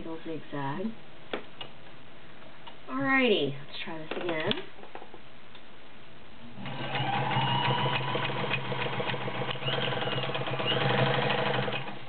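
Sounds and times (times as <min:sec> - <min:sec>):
sewing machine motor whine: 0:06.6 - 0:12.0.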